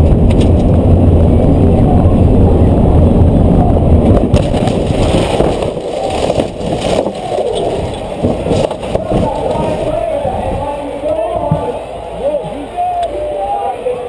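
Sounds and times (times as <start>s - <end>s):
car engine low rumble: 0.0s - 14.0s
rattles and knocks: 4.0s - 10.5s.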